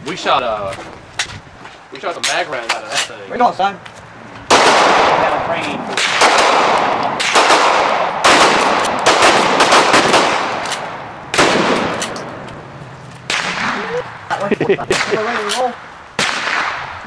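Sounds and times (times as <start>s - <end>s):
shotgun shots: 4.5s - 12.2s, 13.3s - 13.8s, 14.9s - 15.6s, 16.2s - 17.0s.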